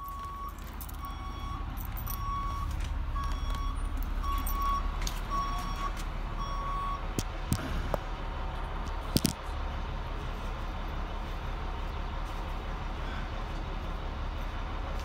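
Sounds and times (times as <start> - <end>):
truck reversing alarm beeps: 0.0 - 7.9
truck engine rumble: 0.0 - 15.0.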